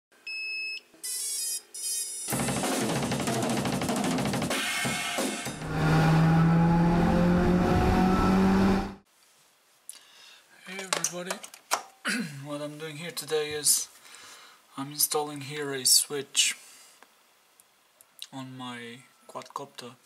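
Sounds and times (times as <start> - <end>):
drums and cymbals: 2.3 - 5.7.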